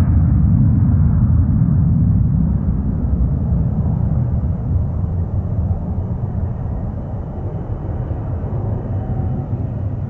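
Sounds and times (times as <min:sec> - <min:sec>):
jet taking off: 0:00.0 - 0:10.0.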